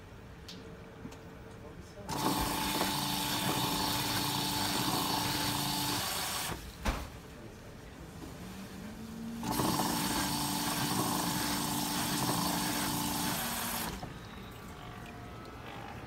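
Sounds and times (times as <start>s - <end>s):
pump motor hum: 2.1s - 6.8s, 9.2s - 16.0s
water jet spraying: 9.4s - 14.1s.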